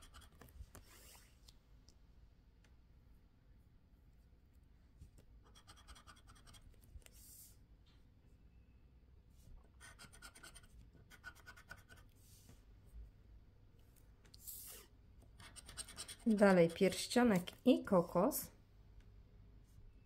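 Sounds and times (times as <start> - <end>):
scraper scratching scratch card: 5.5 - 6.8, 9.8 - 12.1, 15.4 - 17.0.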